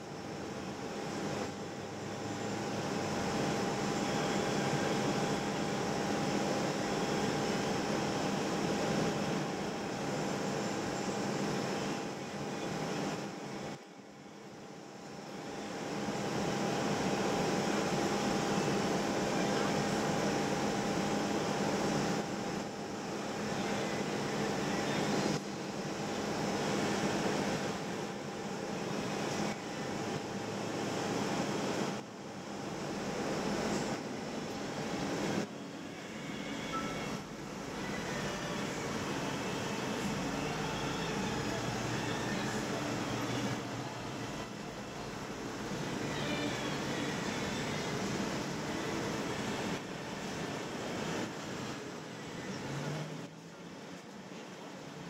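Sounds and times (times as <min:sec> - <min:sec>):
city ambience hum and hiss: 0:00.0 - 0:55.0
faint held tones: 0:36.2 - 0:38.5.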